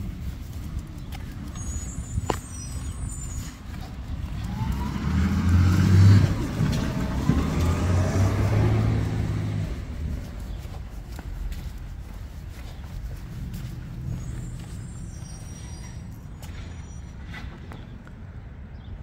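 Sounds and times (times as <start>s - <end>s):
vehicle driving past: 3.4s - 10.9s.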